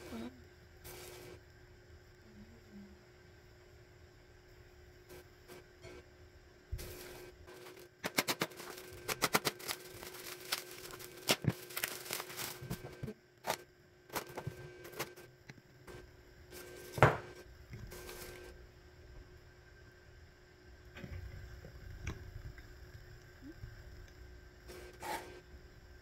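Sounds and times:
bubble wrap crinkling: 6.8 - 15.0.

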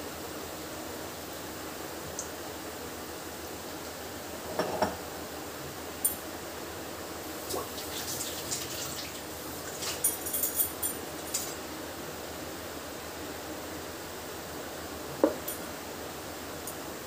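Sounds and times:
food deep-frying in oil: 7.2 - 11.6.

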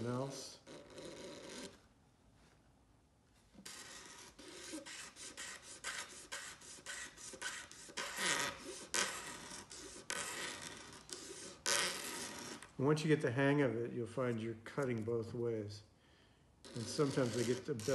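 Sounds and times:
razor blade scraping guitar binding: 3.7 - 12.7, 16.7 - 17.9.

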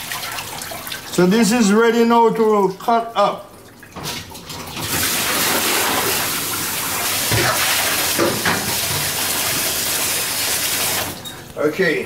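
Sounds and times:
tap running into metal sink: 7.3 - 9.6.

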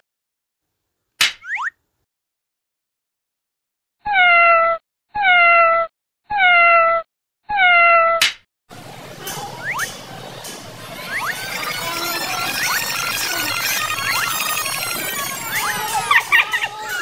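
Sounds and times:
cat meowing: 4.1 - 8.2.

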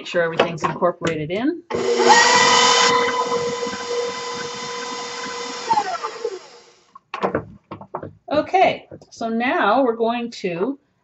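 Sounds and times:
stand mixer motor whine: 1.7 - 6.8.

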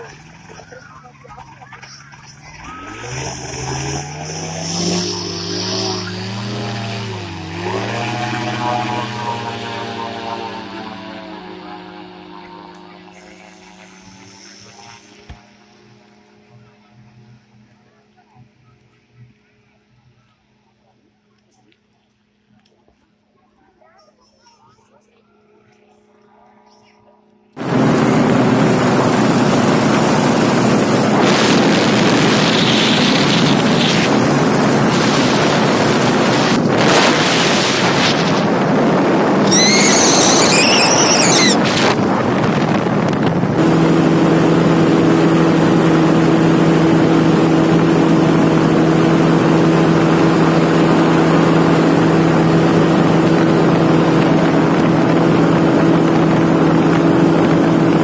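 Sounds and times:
paramotor engine and propeller: 0.0 - 58.0
wind noise on microphone: 27.6 - 58.0.

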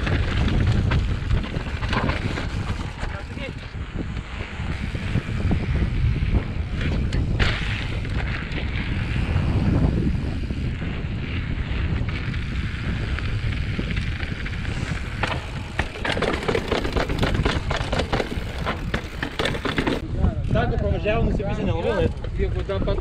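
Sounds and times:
bike rattling on stone steps: 0.0 - 4.2, 11.7 - 20.0
bike tyre rumble: 0.0 - 23.0
wind buffeting microphone: 0.0 - 23.0.

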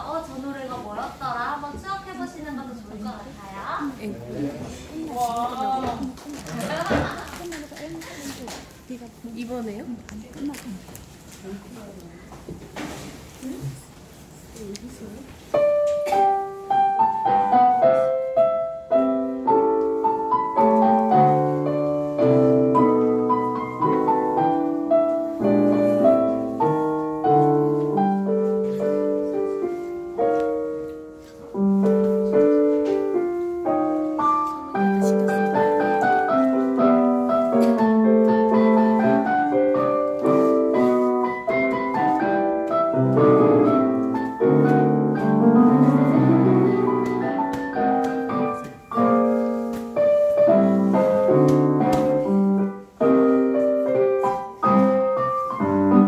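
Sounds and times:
piano duet: 15.2 - 56.0.

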